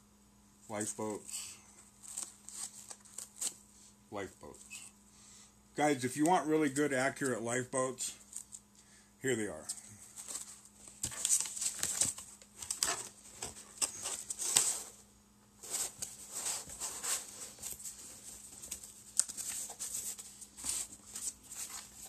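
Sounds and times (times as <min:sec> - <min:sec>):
cardboard rustling and scraping: 0:10.0 - 0:22.0.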